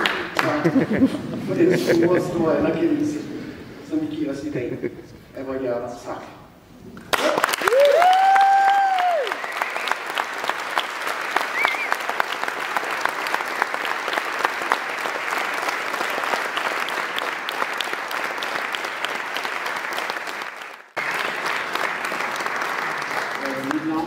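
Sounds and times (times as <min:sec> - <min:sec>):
audience applauding: 0:00.0 - 0:01.0, 0:07.1 - 0:24.0.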